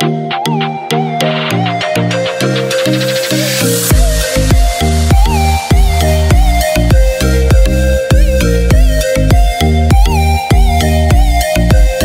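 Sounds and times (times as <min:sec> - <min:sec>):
electronic dance music: 0:00.0 - 0:12.0.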